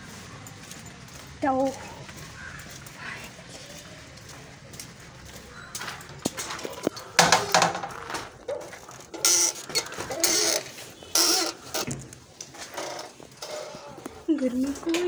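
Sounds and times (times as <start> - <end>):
metal door bolt clattering: 6.4 - 12.1.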